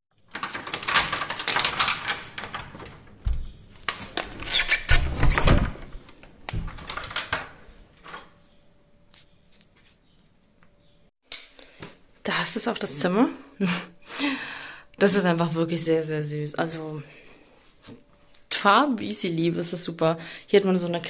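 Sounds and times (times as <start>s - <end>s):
key rattling in door lock: 0.3s - 3.2s, 4.3s - 5.5s
door opening: 0.4s - 8.3s.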